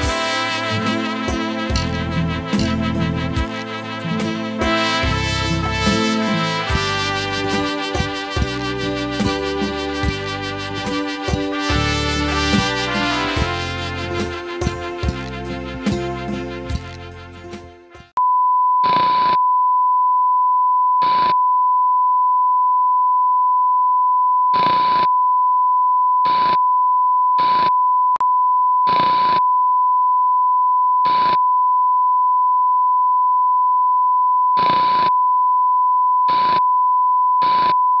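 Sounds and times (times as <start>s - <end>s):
music: 0.0s - 18.1s
steady high test tone beep: 18.2s - 38.0s.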